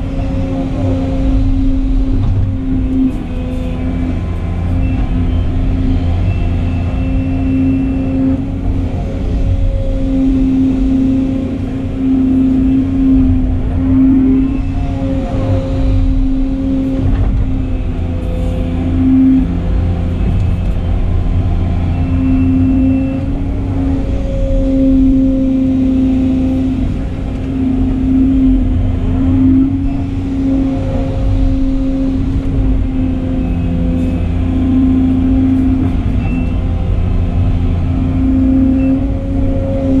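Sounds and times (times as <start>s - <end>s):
excavator diesel engine running: 0.0s - 40.0s.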